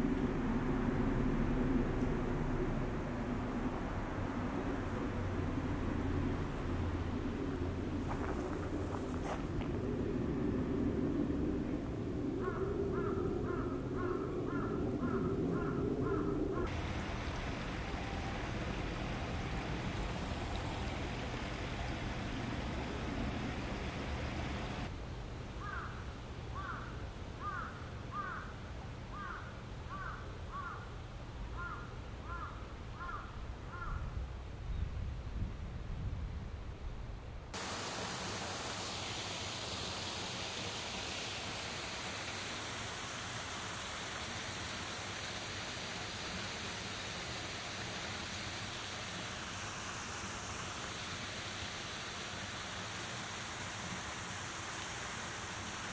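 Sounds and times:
flowing water: 16.6 - 24.9, 37.6 - 55.9.

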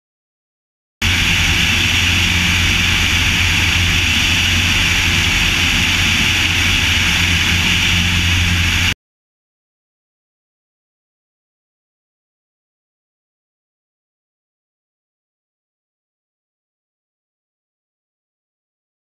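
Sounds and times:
light aircraft engine drone: 1.0 - 9.0.

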